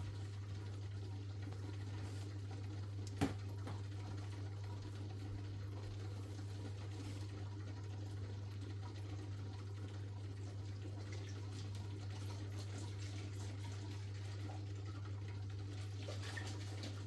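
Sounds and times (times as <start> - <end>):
aquarium filter humming: 0.0 - 17.0
moving water: 0.0 - 17.0.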